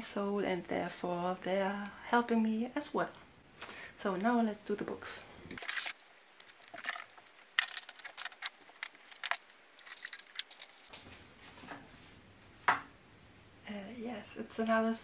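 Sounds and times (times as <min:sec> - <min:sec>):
rummaging clicks and rustles: 0:05.5 - 0:11.8.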